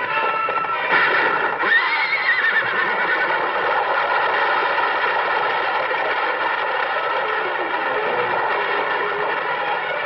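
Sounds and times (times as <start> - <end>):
galloping hoofbeats: 0.0 - 10.0
horse whinnying: 0.5 - 4.2.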